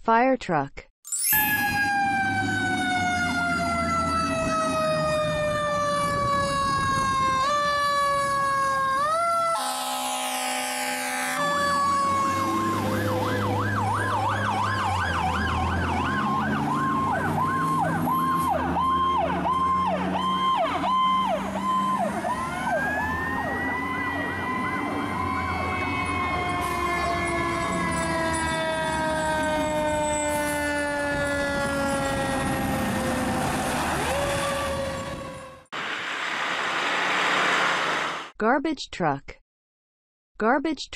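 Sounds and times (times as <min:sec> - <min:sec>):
fire truck sirens: 0:01.2 - 0:38.3
truck engines running: 0:11.4 - 0:38.3.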